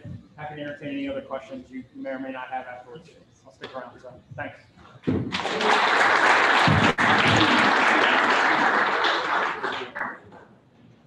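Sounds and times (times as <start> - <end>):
audience applauding: 5.3 - 10.4.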